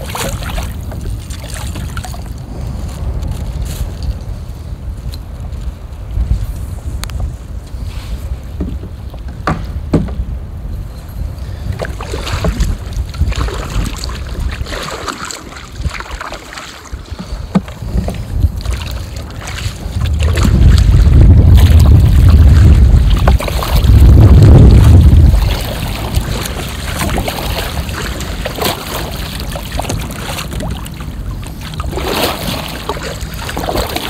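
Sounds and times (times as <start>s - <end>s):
paddle strokes splashing: 0.0s - 3.8s, 11.6s - 34.0s
wind buffeting microphone: 0.0s - 34.0s.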